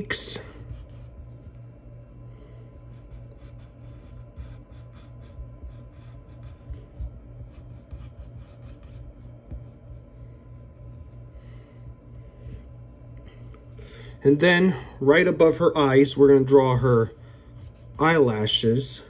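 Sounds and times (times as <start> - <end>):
low steady hum: 0.0 - 19.0
pencil scratching on paper: 0.1 - 2.0, 2.8 - 11.4, 16.8 - 18.8.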